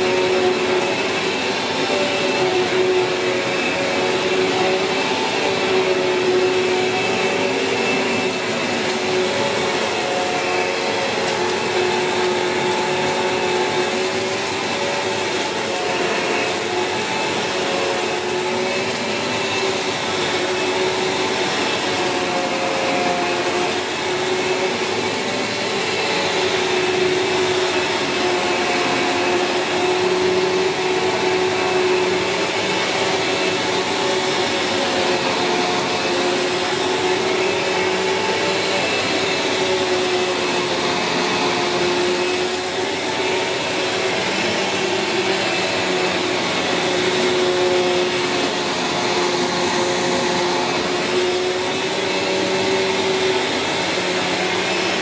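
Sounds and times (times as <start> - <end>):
vacuum cleaner running on carpet: 0.0 - 55.0.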